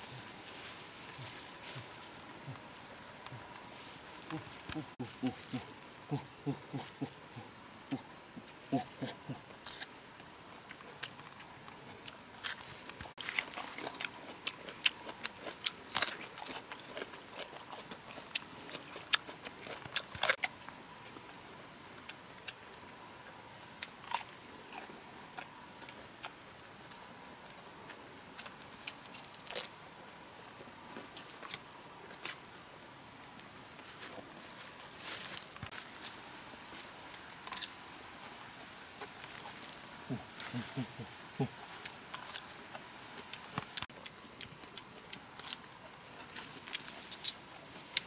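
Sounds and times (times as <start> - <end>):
leaves and branches rustling: 0.0 - 7.9, 28.5 - 43.8, 44.8 - 48.0.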